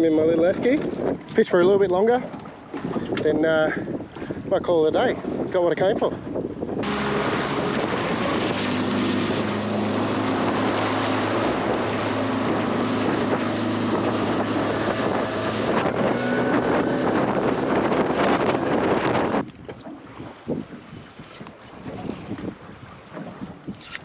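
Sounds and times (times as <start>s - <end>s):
water rushing past hull: 0.0s - 24.0s
wind noise on microphone: 0.0s - 24.0s
outboard motor running: 6.6s - 23.7s.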